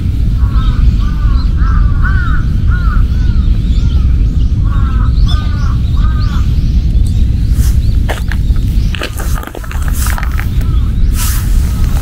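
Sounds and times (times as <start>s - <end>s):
low rumble: 0.0s - 12.0s
crows cawing: 0.3s - 3.5s, 4.6s - 6.5s.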